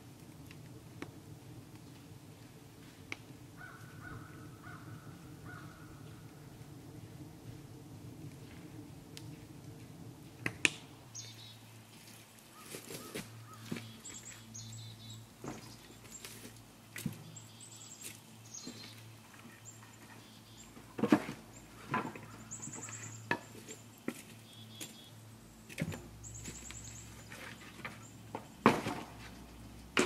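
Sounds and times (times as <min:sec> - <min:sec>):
firewood knocking and clunking: 0:20.8 - 0:22.4, 0:27.3 - 0:29.3.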